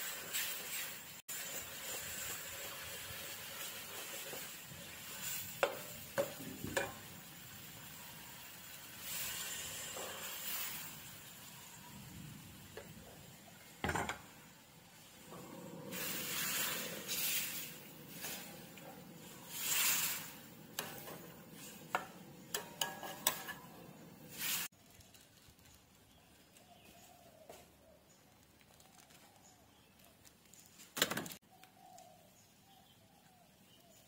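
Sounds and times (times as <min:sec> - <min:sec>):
liquid swishing in a wok: 0:15.3 - 0:24.7
ladle clinking against wok: 0:20.8 - 0:23.8.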